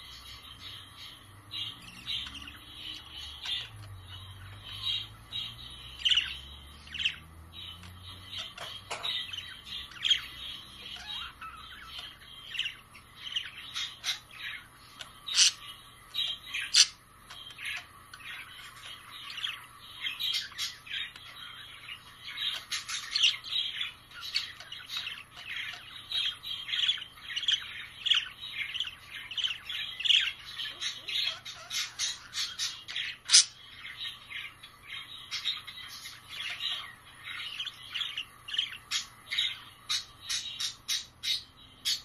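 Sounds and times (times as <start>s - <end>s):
budgerigars chattering: 0.0s - 42.0s.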